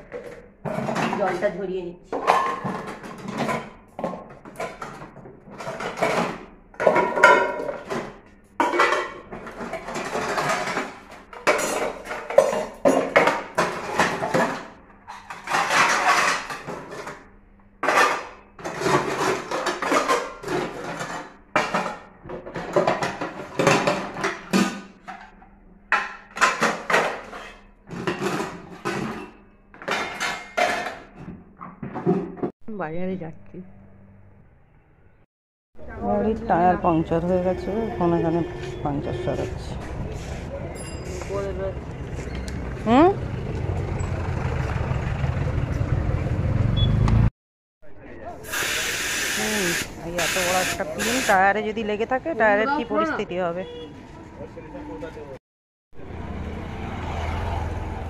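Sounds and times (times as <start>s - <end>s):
metal dishes clattering: 0.0s - 32.5s.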